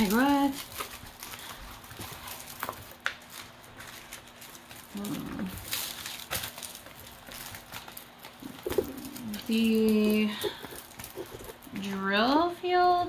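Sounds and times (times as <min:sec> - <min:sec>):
plastic film crinkling: 0:00.0 - 0:12.4
person humming: 0:08.4 - 0:11.5.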